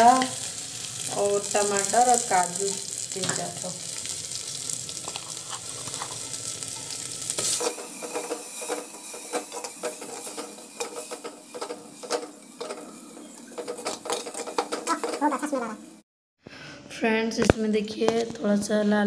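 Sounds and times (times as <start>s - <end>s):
paste sizzling in oil: 0.0s - 16.0s
spatula scraping clay pot: 5.0s - 6.4s.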